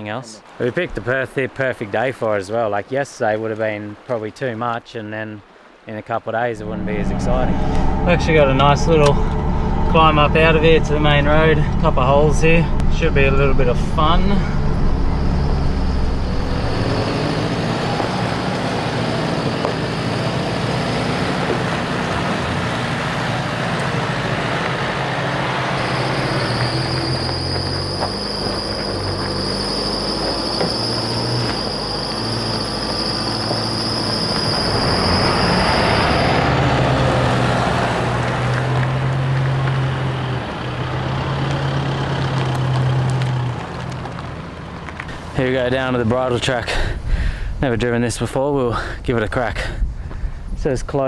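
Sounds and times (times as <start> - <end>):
engines pulling uphill: 0.0 - 4.8, 5.4 - 51.0
high steady squeal: 6.6 - 22.0, 22.6 - 37.3
tyres grinding over rocks: 14.2 - 36.1, 36.8 - 46.6.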